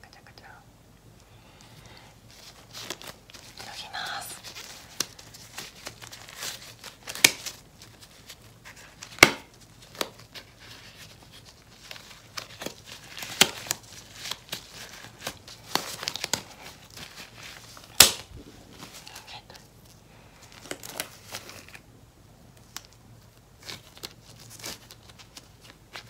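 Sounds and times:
rubber gloves crinkling and rubbing: 0:01.5 - 0:26.0
rubber glove snaps: 0:07.1 - 0:07.5, 0:09.2 - 0:10.1, 0:17.9 - 0:18.3.

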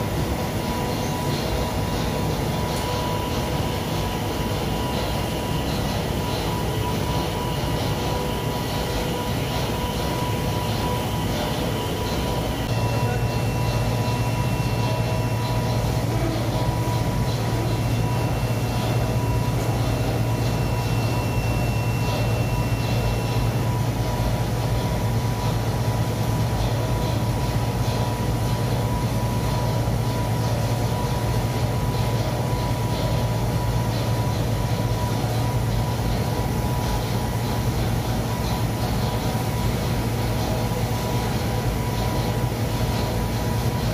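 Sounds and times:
machinery humming: 0:00.0 - 0:43.9
thin high whine: 0:00.0 - 0:43.9
constant high tone: 0:00.1 - 0:24.5.

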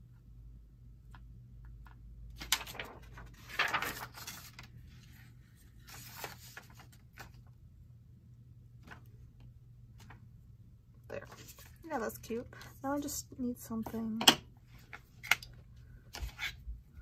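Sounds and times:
paper rustling and sliding: 0:02.4 - 0:07.5.

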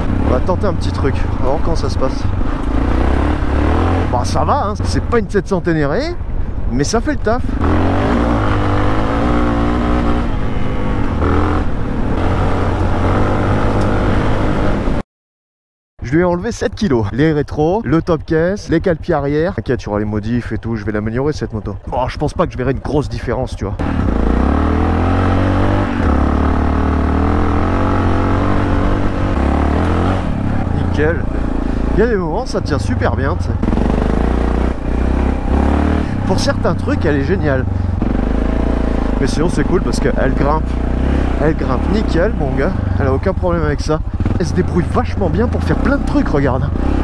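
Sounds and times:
motorcycle engine pulling: 0:23.8 - 0:47.0.

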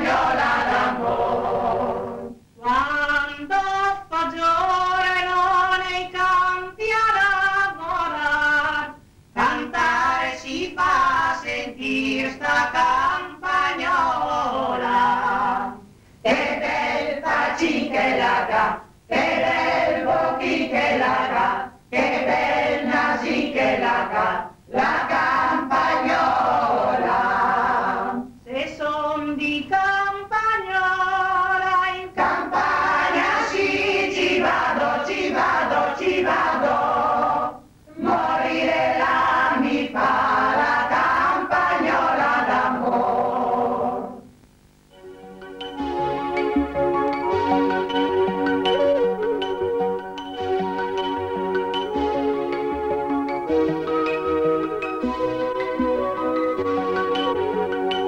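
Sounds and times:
choir singing: 0:00.0 - 0:05.2, 0:09.4 - 0:30.1, 0:31.5 - 0:44.2.

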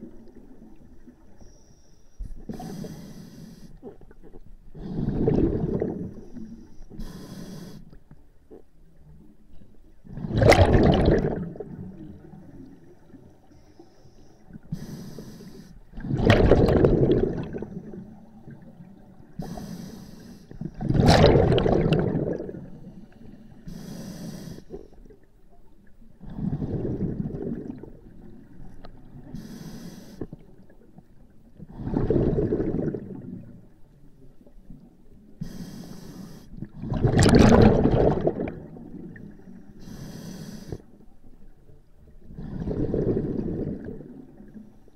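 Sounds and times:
regulator inhale hiss: 0:01.3 - 0:04.0, 0:06.3 - 0:08.2, 0:13.4 - 0:15.9, 0:19.4 - 0:20.7, 0:22.7 - 0:25.0, 0:29.2 - 0:30.4, 0:35.4 - 0:36.6, 0:39.6 - 0:41.0
exhaled bubbles: 0:04.7 - 0:06.4, 0:10.0 - 0:13.2, 0:15.9 - 0:19.2, 0:20.6 - 0:23.0, 0:26.2 - 0:29.3, 0:31.7 - 0:33.7, 0:36.6 - 0:39.7, 0:42.2 - 0:44.7.

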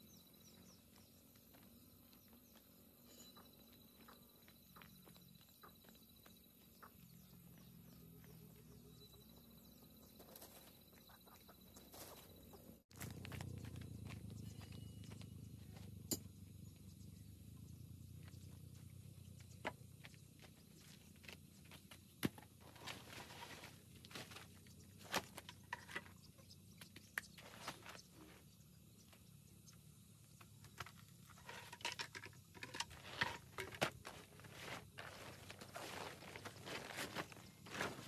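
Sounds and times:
tarp rustling: 0:34.1 - 0:38.0.

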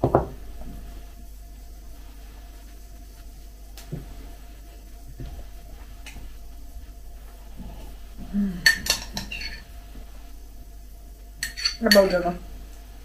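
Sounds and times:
metal spoon clinking on ceramic mug: 0:11.4 - 0:12.2.

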